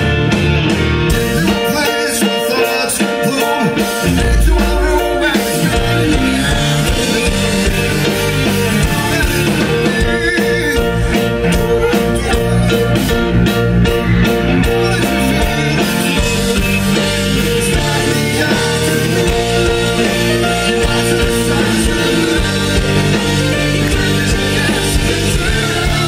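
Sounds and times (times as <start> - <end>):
drum kit: 0.0 - 26.0
electric bass: 0.0 - 26.0
electric guitar: 0.0 - 26.0
keyboard: 0.0 - 26.0
deep bass note: 4.1 - 9.2.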